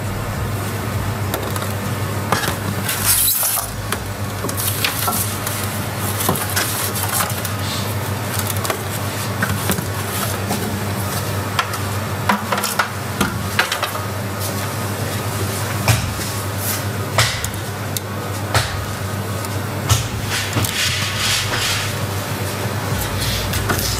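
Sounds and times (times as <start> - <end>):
low hum: 0.0 - 5.9, 21.8 - 23.9.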